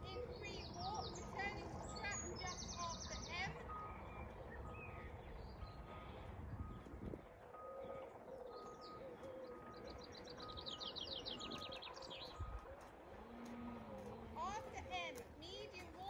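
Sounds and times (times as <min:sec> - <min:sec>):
low cooing: 0:05.8 - 0:10.7, 0:11.4 - 0:14.8.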